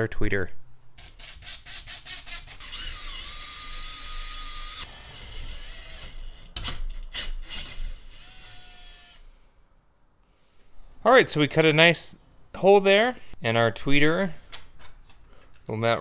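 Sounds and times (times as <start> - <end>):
cordless drill motor whining: 2.6 - 6.5, 7.4 - 9.2.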